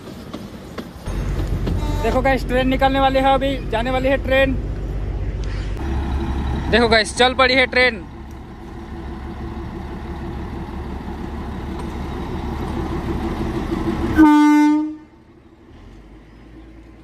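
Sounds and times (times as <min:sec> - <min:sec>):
diesel locomotive running: 0:00.0 - 0:17.0
train horn blast: 0:01.6 - 0:02.4, 0:14.2 - 0:15.2.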